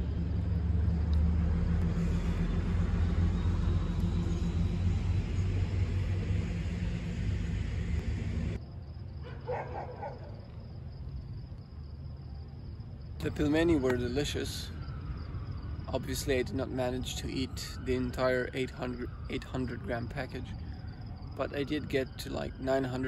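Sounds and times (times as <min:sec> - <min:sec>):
heavy vehicle engine rumbling: 0:00.0 - 0:08.6.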